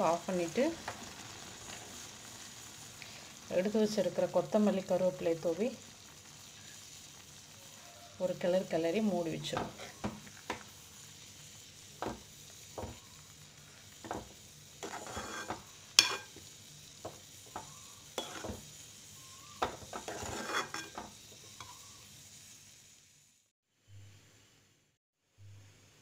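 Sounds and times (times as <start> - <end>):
metal spoon scraping a pot: 14.8 - 16.4, 17.6 - 18.6, 19.6 - 21.8.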